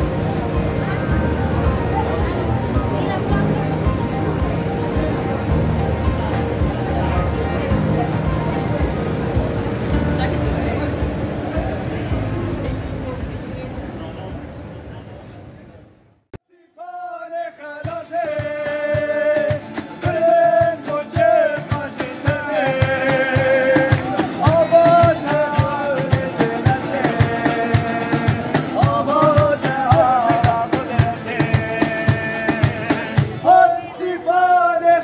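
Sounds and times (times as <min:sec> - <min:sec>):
strummed acoustic guitars: 0:00.0 - 0:13.0, 0:17.8 - 0:33.7
cajon beating rhythm: 0:00.0 - 0:14.0, 0:17.8 - 0:33.8
person singing: 0:16.5 - 0:35.0.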